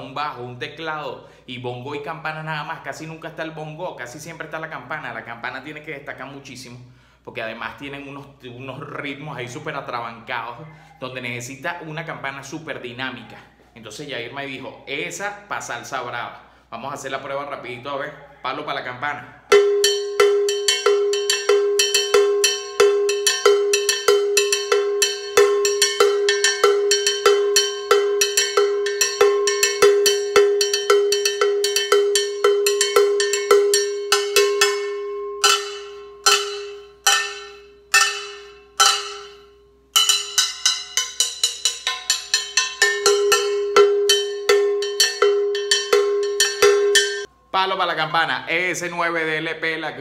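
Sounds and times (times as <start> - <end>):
cowbell struck with stick: 19.5 - 47.3.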